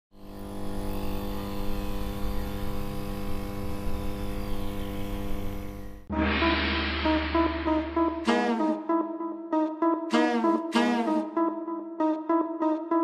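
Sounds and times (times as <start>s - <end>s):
low electronic drone: 6.1s - 13.0s
music with heavy bass: 6.1s - 13.0s.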